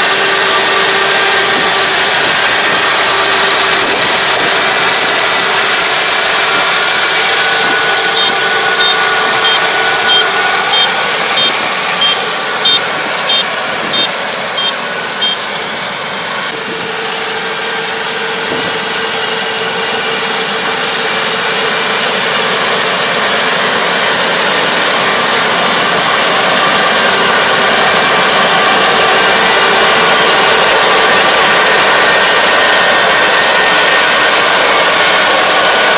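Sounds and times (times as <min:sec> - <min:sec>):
combine harvester engine running: 0:00.0 - 0:35.9
high electronic beeper: 0:07.6 - 0:15.5.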